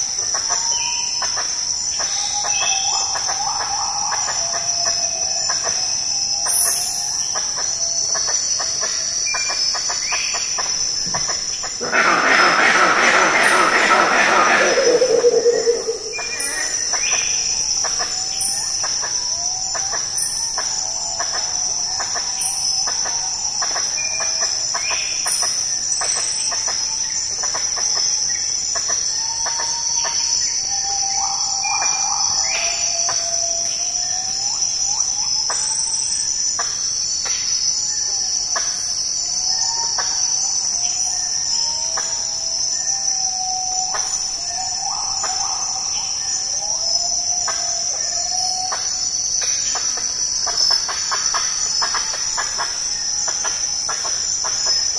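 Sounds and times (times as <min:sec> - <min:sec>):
high-pitched insect drone: 0:00.0 - 0:54.9
arching bird calls: 0:11.2 - 0:17.2.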